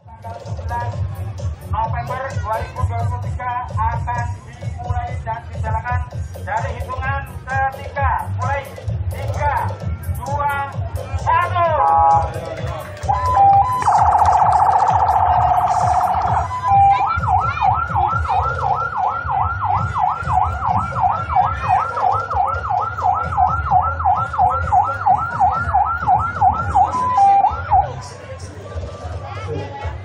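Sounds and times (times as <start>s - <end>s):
electronic siren warbling: 13.0s - 27.9s.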